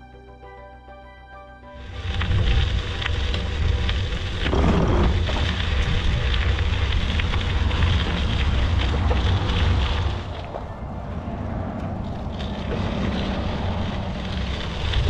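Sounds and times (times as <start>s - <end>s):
bicycle tyres on gravel: 1.8s - 15.0s
wind buffeting microphone: 1.8s - 15.0s.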